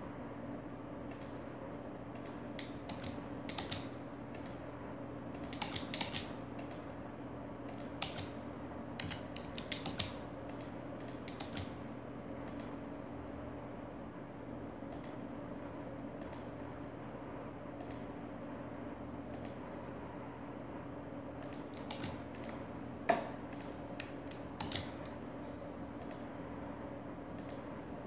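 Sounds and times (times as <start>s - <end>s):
keyboard keystrokes: 2.2s - 4.6s, 5.4s - 6.8s, 7.7s - 8.4s, 9.0s - 11.8s, 21.4s - 25.1s
mouse clicks: 12.5s - 12.8s, 14.9s - 15.2s, 17.8s - 18.1s, 19.3s - 19.6s, 21.4s - 24.9s, 26.0s - 26.2s, 27.4s - 27.6s.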